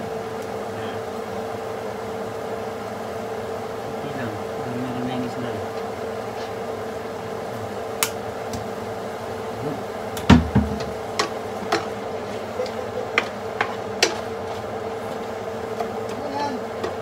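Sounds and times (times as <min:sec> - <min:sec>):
steady hum: 0:00.0 - 0:17.0
heavy thump: 0:10.2 - 0:10.9.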